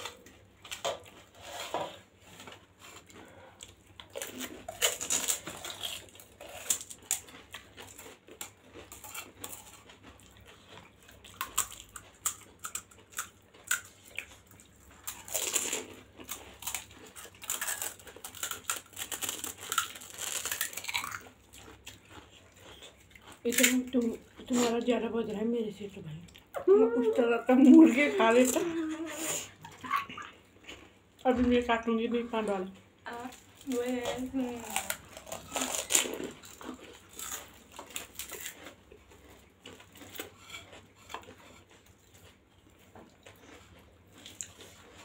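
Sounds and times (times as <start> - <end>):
wet chewing: 0.0 - 26.6, 32.4 - 45.0
crisp shells crunching: 15.1 - 22.2, 33.5 - 38.8.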